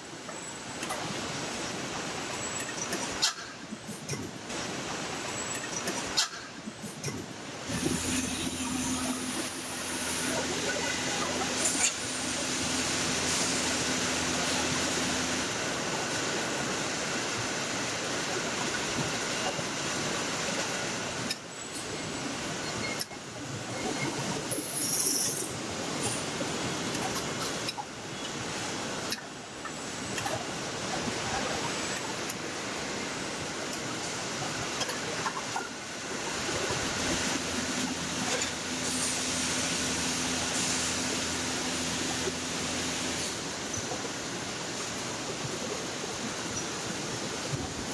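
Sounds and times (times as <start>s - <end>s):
assembly line machinery hiss: 6.8s - 21.2s, 24.5s - 26.6s, 35.9s - 43.7s
steady hum: 7.0s - 21.4s.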